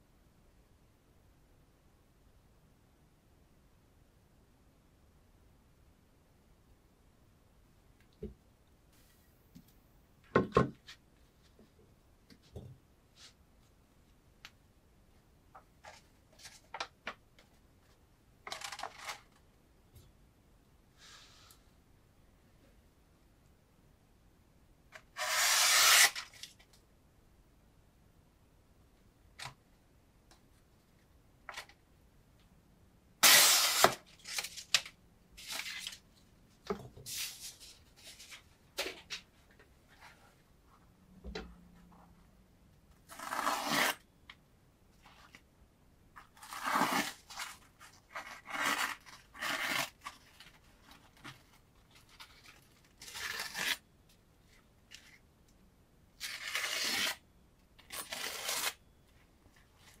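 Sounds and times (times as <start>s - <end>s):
knife slicing through paper: 46.4s - 50.2s, 53.0s - 53.8s.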